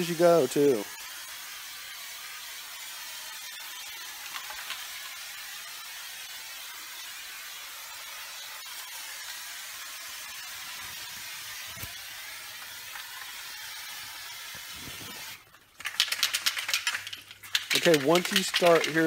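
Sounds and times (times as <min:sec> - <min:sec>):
aerosol can spraying hiss: 0:00.0 - 0:19.0
mixing ball rattling in can: 0:03.5 - 0:05.2, 0:14.5 - 0:19.0.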